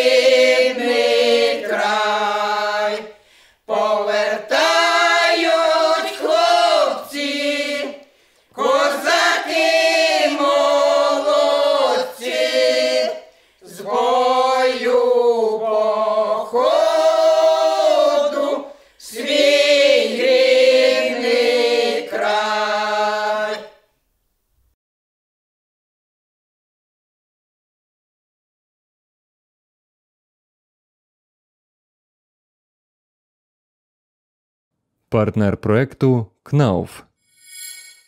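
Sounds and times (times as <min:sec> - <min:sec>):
women singing folk song a cappella: 0:00.0 - 0:23.9.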